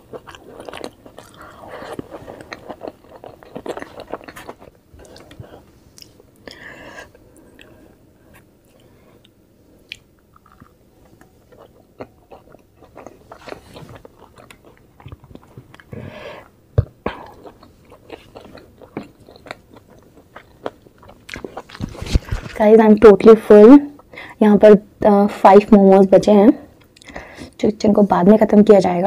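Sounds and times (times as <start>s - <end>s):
wet chewing sounds: 0.0s - 16.0s, 16.8s - 22.6s.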